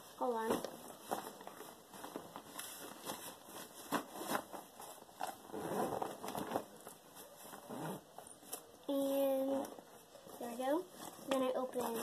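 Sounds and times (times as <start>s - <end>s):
backpack rustling and scraping: 0.4s - 8.5s.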